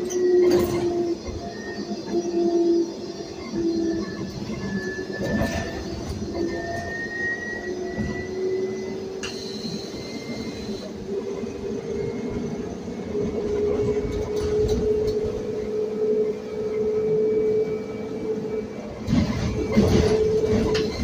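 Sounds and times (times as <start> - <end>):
electric drivetrain whine: 0.0 - 21.0
road rumble and rattles: 10.5 - 15.8.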